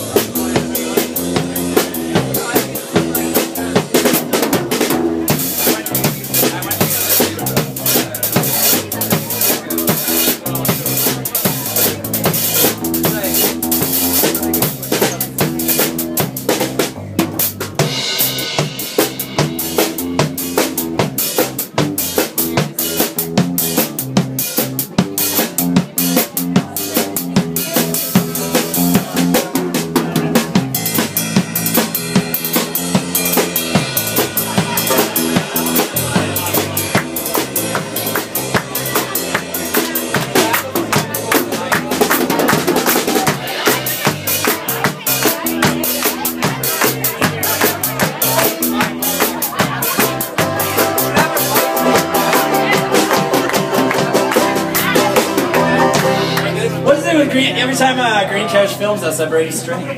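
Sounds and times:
banjo: 0:00.0 - 0:58.1
driving percussive beat: 0:00.0 - 0:59.1
acoustic guitar strumming: 0:49.4 - 0:58.6.

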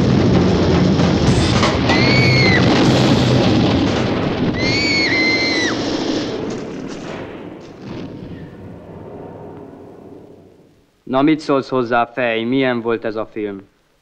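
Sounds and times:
explosions and battle rumble: 0:00.0 - 0:10.7
high whistles: 0:01.9 - 0:02.7, 0:04.6 - 0:06.0.

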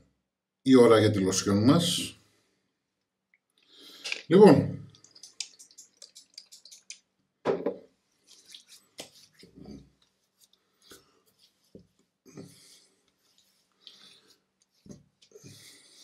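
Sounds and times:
soft wet pats on face: 0:05.0 - 0:07.1, 0:08.2 - 0:15.8.

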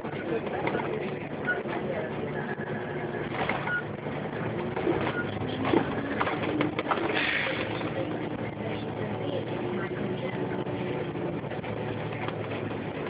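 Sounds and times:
bus cabin drone: 0:00.0 - 0:13.0
rattles and clicks: 0:03.2 - 0:08.2.

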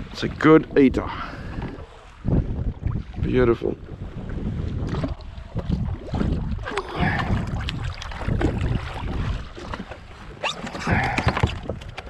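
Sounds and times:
water slapping against hull: 0:00.0 - 0:12.0
wind buffeting microphone: 0:00.0 - 0:12.0.

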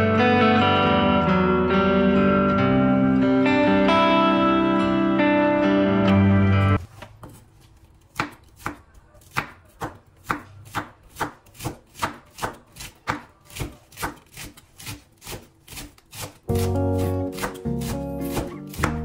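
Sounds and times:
music: 0:00.0 - 0:06.8, 0:16.5 - 0:19.0
knife chopping on cutting board: 0:08.1 - 0:19.0.

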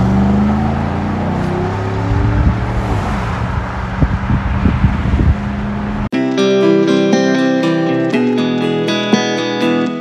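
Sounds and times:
engine accelerating with deep rumble: 0:00.0 - 0:06.1.

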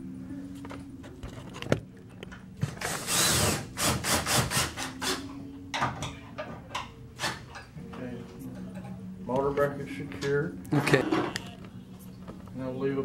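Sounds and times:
cordless drill whirring: 0:02.8 - 0:05.2.

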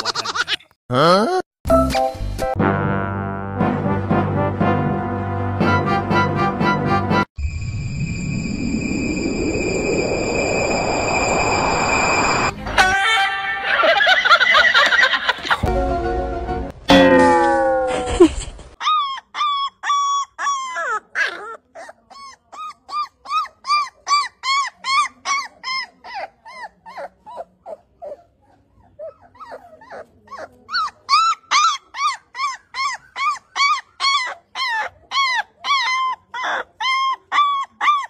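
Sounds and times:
puppy whining: 0:17.2 - 0:38.0.

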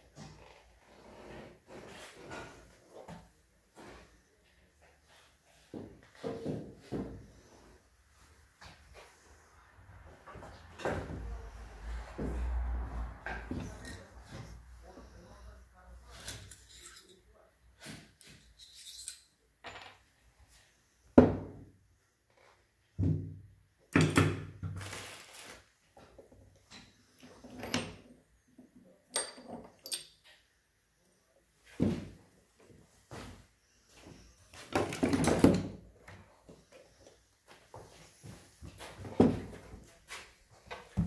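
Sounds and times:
objects knocking and clattering: 0:34.7 - 0:35.8.

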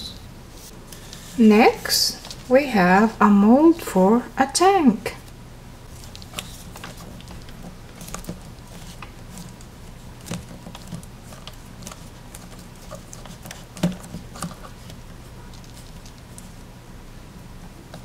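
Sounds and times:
faint steady hum: 0:00.0 - 0:18.0
hollow plastic toy handled: 0:05.9 - 0:16.5
fingers pressing modelling dough: 0:06.0 - 0:16.5.

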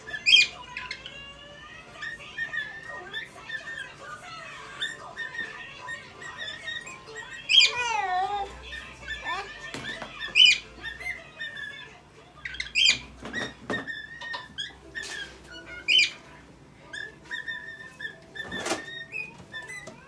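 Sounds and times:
bird chirps: 0:00.0 - 0:16.3, 0:16.9 - 0:20.0
bird whistling a tune: 0:08.7 - 0:11.8, 0:16.9 - 0:20.0.

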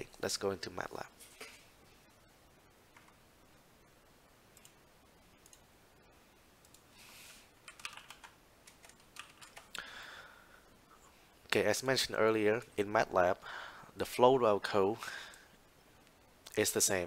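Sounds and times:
faint keyboard typing: 0:02.9 - 0:03.2, 0:04.5 - 0:04.8, 0:05.4 - 0:05.7, 0:06.6 - 0:06.9, 0:07.6 - 0:09.9.

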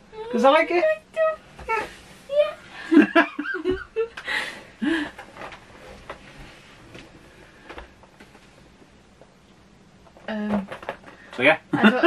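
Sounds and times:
person laughing: 0:02.8 - 0:04.2, 0:11.7 - 0:12.0
person breathing: 0:04.2 - 0:05.3.

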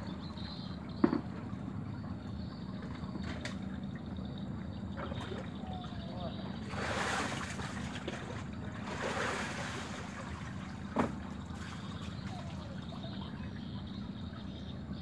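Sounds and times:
river water lapping: 0:00.0 - 0:15.0.

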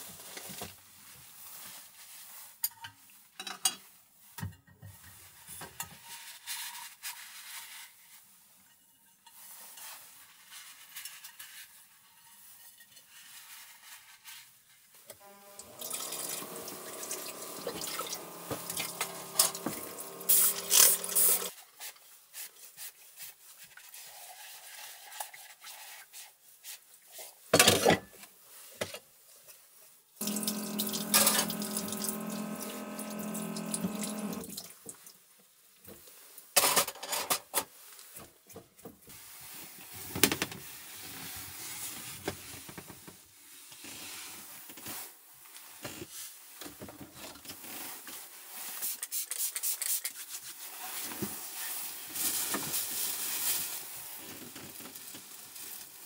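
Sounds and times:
steady hum: 0:15.2 - 0:21.5, 0:30.2 - 0:34.5
water running into sink: 0:15.2 - 0:21.5, 0:30.2 - 0:34.7.

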